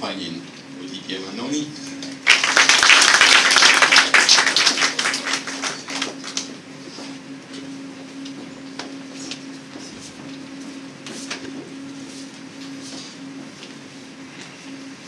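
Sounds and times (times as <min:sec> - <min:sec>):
steady low hum: 0:00.0 - 0:15.0
audience applauding: 0:02.0 - 0:06.5.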